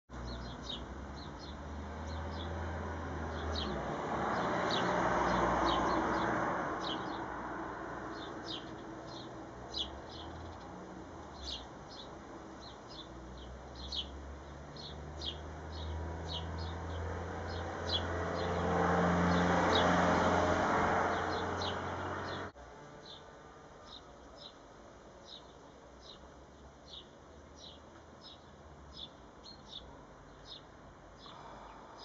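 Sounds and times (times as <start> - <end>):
sparrow chirping: 0.2 - 2.7, 3.3 - 7.4, 8.0 - 18.7, 21.1 - 24.6, 25.2 - 32.0
passing vehicle: 0.2 - 24.1.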